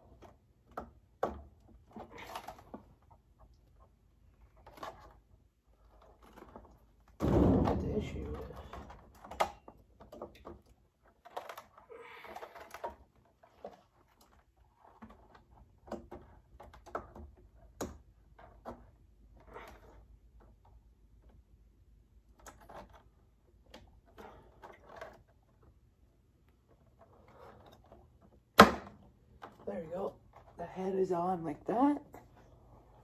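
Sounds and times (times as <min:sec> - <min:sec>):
plastic parts clicking and tapping: 0:08.1 - 0:21.4.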